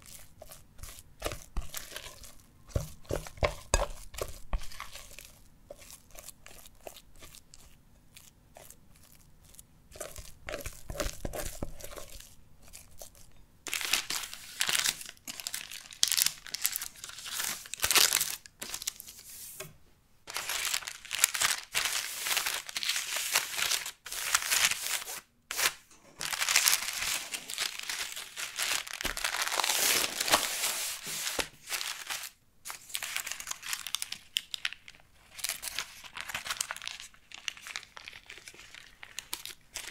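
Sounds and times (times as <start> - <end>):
spatula mixing in glass bowl: 0.0 - 13.4
baking paper crinkling and tearing: 13.7 - 19.6, 20.3 - 39.9.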